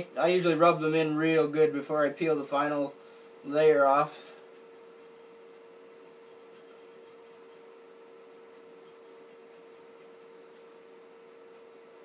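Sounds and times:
steady low hum: 0.0s - 12.0s
fingers rubbing a sticker on wood: 4.4s - 10.8s.

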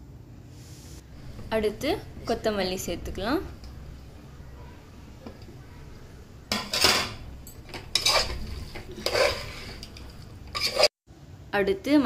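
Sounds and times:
ladle scraping metal pot: 6.5s - 11.0s.

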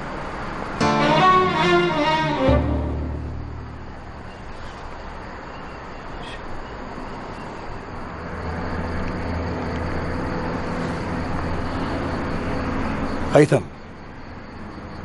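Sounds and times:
outdoor background hiss: 0.0s - 15.0s
steady low hum: 2.6s - 5.0s.

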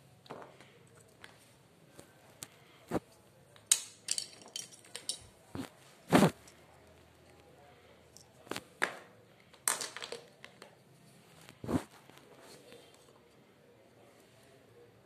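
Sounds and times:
plastic items clicking and knocking: 3.6s - 5.7s, 8.5s - 10.8s.

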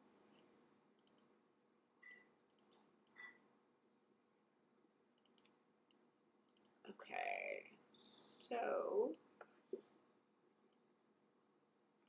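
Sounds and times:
computer mouse clicks: 1.0s - 1.3s, 2.0s - 3.4s, 5.2s - 6.8s.

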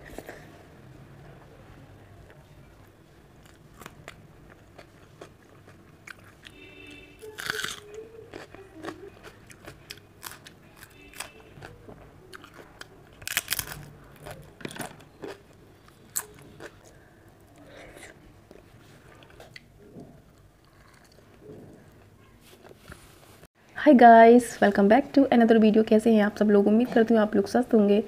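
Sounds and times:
crunching bites of cucumber: 13.2s - 15.4s.

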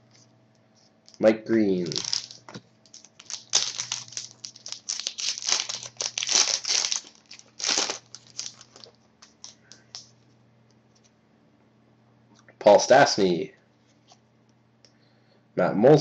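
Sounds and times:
faint steady hum: 0.0s - 16.0s
card pack wrapper tearing and crinkling: 1.1s - 10.0s.

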